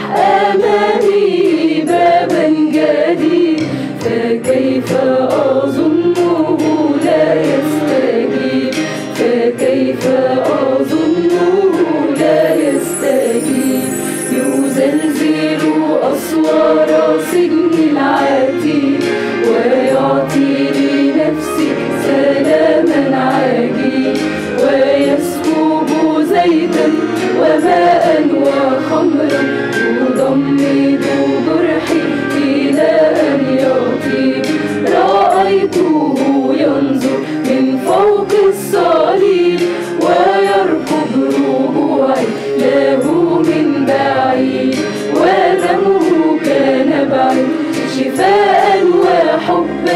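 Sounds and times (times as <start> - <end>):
mixed choir singing a hymn: 0.0 - 49.9.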